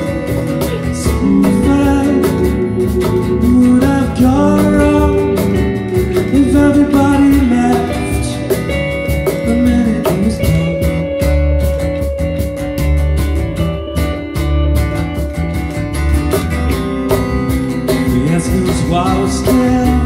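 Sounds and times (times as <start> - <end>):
man singing: 0.0 - 11.5, 18.0 - 20.0
electric bass: 0.0 - 20.0
electric guitar: 0.0 - 20.0
steady drum beat: 0.0 - 20.0
strummed acoustic guitar: 0.0 - 20.0.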